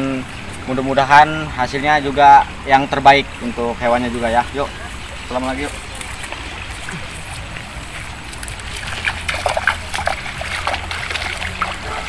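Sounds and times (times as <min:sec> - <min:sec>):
flowing stream: 0:00.0 - 0:12.0
feet splashing in water: 0:04.2 - 0:12.0.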